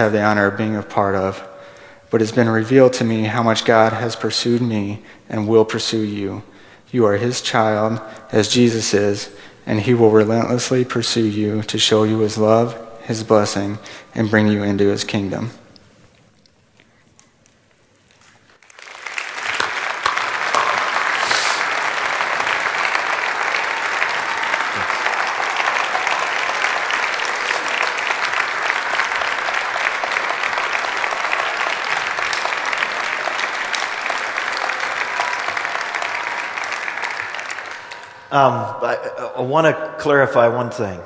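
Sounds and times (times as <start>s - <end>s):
congregation applauding: 18.5s - 38.5s.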